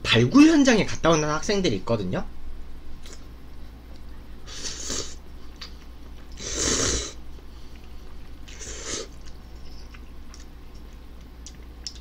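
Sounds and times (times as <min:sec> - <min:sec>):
chewing clicks: 0:07.4 - 0:12.0.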